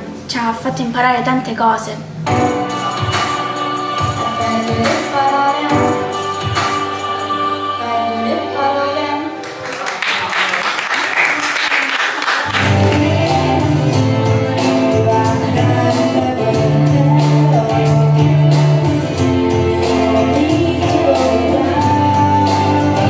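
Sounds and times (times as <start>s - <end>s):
keyboard: 2.0s - 10.3s, 12.5s - 23.0s
drum kit beat: 2.2s - 7.2s, 12.4s - 23.0s
girl singing into a microphone: 4.0s - 6.2s, 7.8s - 9.4s, 12.7s - 19.0s, 19.8s - 23.0s
low bass notes: 12.5s - 23.0s.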